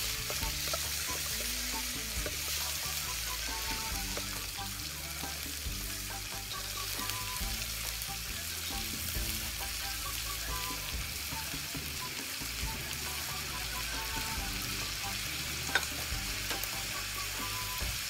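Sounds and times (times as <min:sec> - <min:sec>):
wooden spatula stirring: 0:00.0 - 0:04.6
food sizzling in a wok: 0:00.0 - 0:18.0
soft background music: 0:00.0 - 0:18.0.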